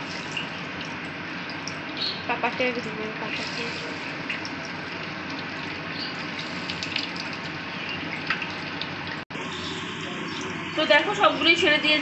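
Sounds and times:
chicken sizzling in oil: 0:00.0 - 0:11.3.

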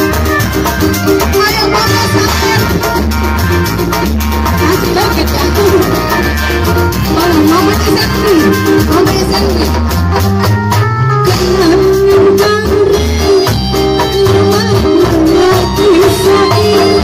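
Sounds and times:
loud amplified dangdut music: 0:00.0 - 0:17.0
woman singing into microphone: 0:01.2 - 0:02.9, 0:11.3 - 0:17.0.

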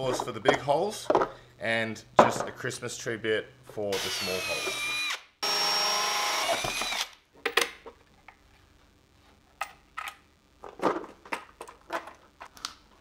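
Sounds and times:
power drill cutting plastic: 0:03.9 - 0:07.2.

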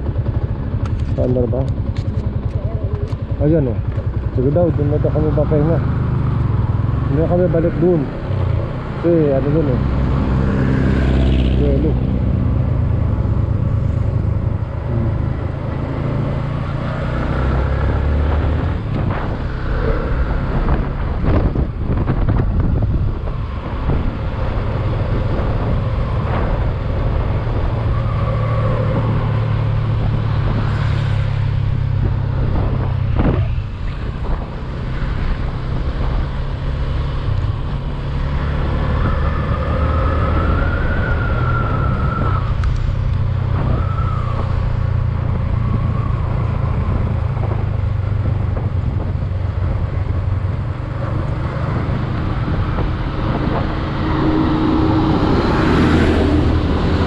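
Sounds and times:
wind rumble on microphone: 0:00.0 - 0:57.0
scooter engine whine: 0:09.8 - 0:57.0.

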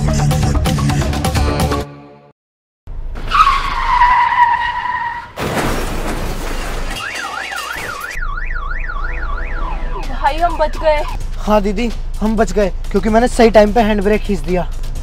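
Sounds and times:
car tyres screeching: 0:03.1 - 0:05.4
warbling alarm siren: 0:07.0 - 0:11.1.

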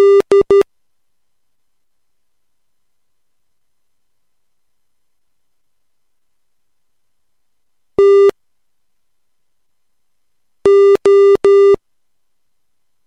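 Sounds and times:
morse code tone: 0:08.0 - 0:08.3, 0:10.7 - 0:11.8.

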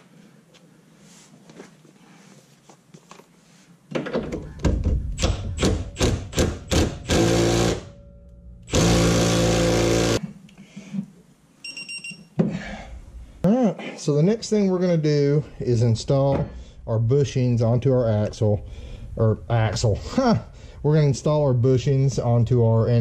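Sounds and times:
impact wrench hammering: 0:04.7 - 0:10.3.

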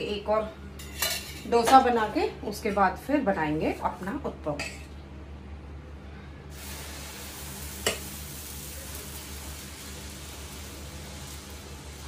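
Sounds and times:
batter sizzling on hot pan: 0:06.5 - 0:12.0.

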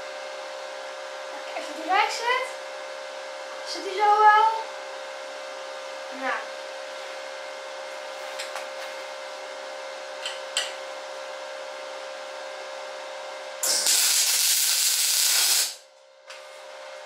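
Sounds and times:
welding arc crackling hiss: 0:13.6 - 0:15.9.

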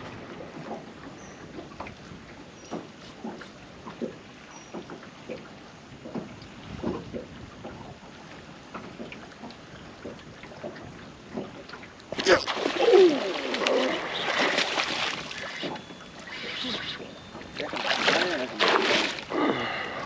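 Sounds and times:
wind rumble on microphone: 0:05.9 - 0:09.1.

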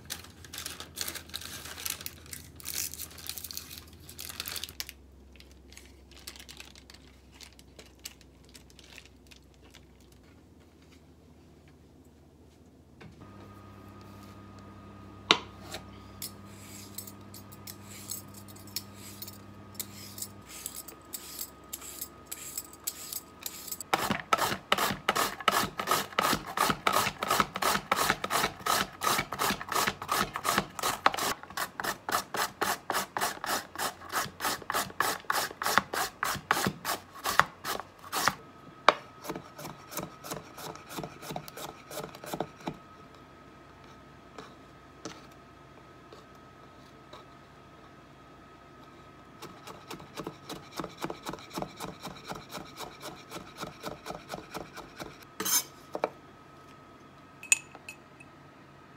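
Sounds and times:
radish rasping on a grater: 0:18.8 - 0:38.4, 0:49.4 - 0:55.1.

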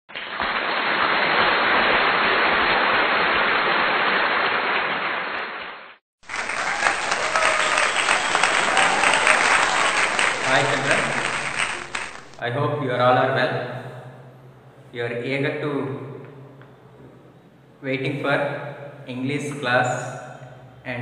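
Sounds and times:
crowd clapping: 0:00.1 - 0:05.2, 0:06.2 - 0:12.4.

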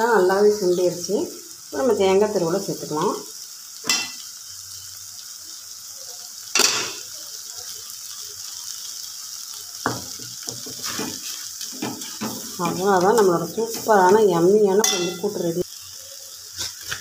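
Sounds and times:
vegetables sizzling in a pan: 0:00.0 - 0:17.0
metal spoon scraping a pan: 0:03.8 - 0:04.3, 0:10.5 - 0:15.4, 0:16.5 - 0:17.0.

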